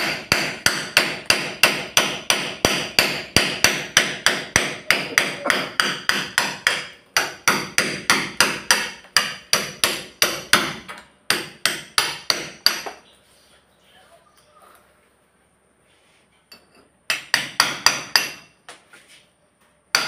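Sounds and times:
hammer blows ringing: 0:00.0 - 0:13.0.

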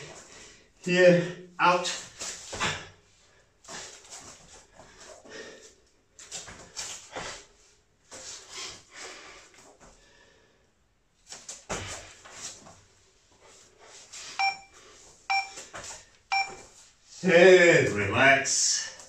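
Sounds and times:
electronic timer beep: 0:14.4 - 0:15.6, 0:16.3 - 0:16.6.

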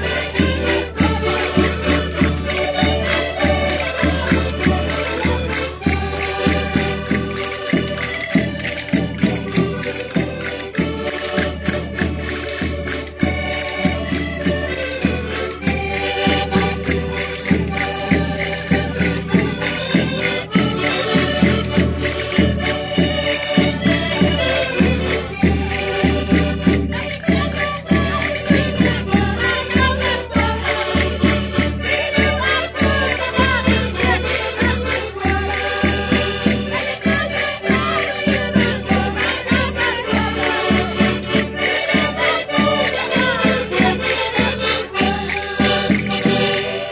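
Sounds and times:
button accordion: 0:00.0 - 0:46.9
women singing together: 0:26.9 - 0:46.9.

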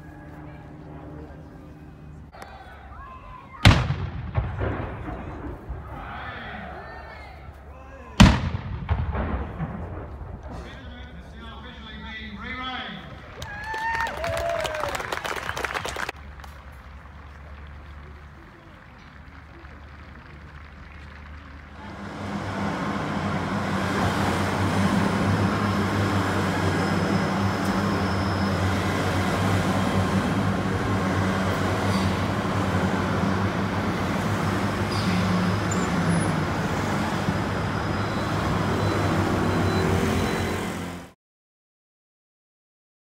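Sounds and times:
vehicle engine drone: 0:00.0 - 0:08.1, 0:14.5 - 0:41.2
tyre and road noise: 0:00.0 - 0:41.2.

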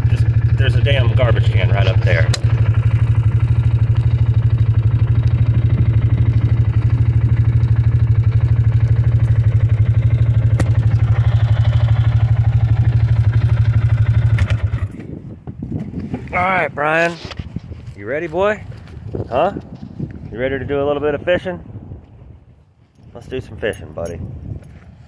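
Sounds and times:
utility vehicle engine running: 0:00.0 - 0:15.3.

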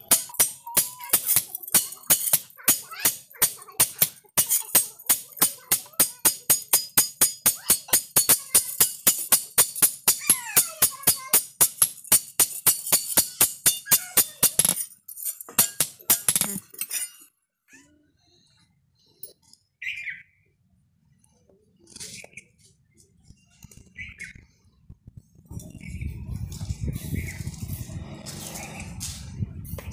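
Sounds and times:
hammer striking metal on anvil: 0:00.0 - 0:17.2.

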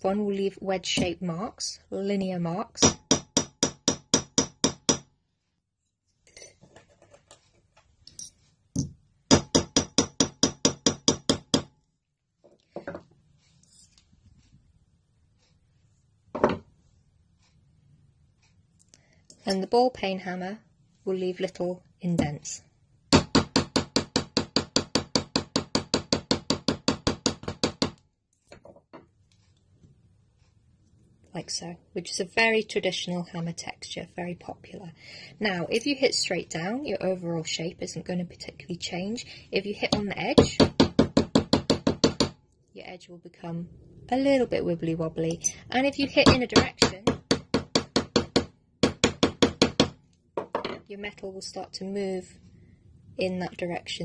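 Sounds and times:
hammer tapping on sheet metal: 0:02.8 - 0:05.1, 0:08.8 - 0:11.7, 0:23.1 - 0:28.0, 0:39.9 - 0:42.4, 0:46.2 - 0:50.7
hammer tapping metal sheet: 0:45.4 - 0:50.0.

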